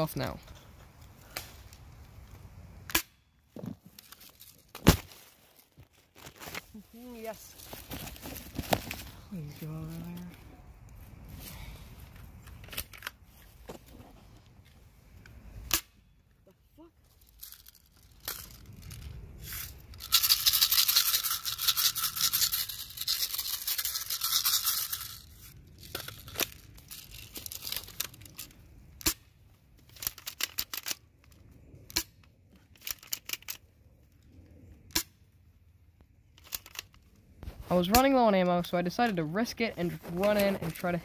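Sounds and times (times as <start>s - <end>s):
dry leaves rustling: 4.0s - 10.6s.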